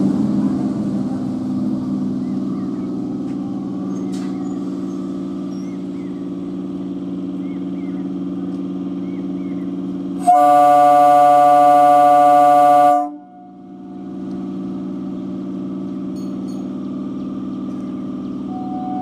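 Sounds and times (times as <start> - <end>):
train electrical hum: 0.0 - 19.0
train horn blast: 10.2 - 13.8.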